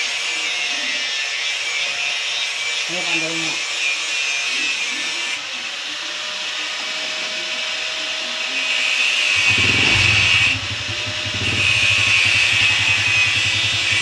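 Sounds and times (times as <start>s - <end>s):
motorcycle engine running: 9.3s - 14.0s.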